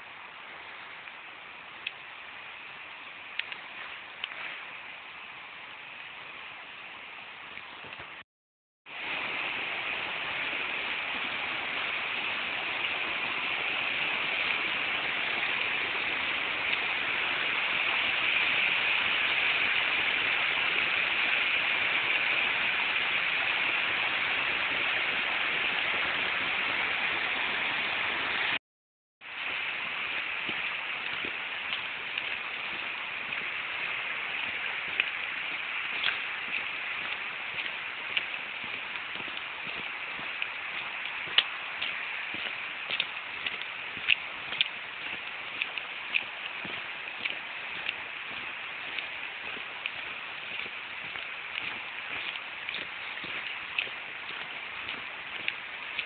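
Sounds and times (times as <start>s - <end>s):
light ticks: 3.3s - 4.5s, 31.0s - 33.4s, 34.4s - 56.0s
stream rushing over rocks: 8.9s - 28.6s, 29.2s - 56.0s.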